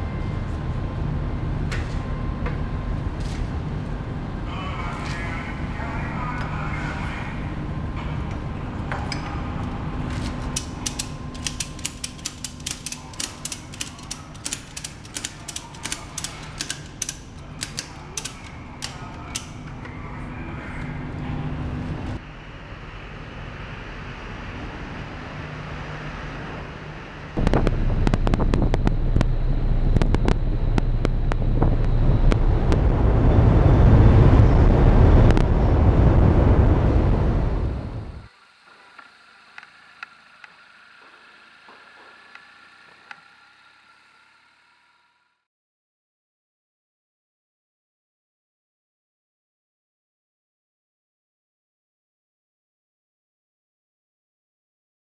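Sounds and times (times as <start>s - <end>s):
loud low steady noise: 0.0s - 38.3s
ratchet strap pawl clicking: 10.5s - 19.6s.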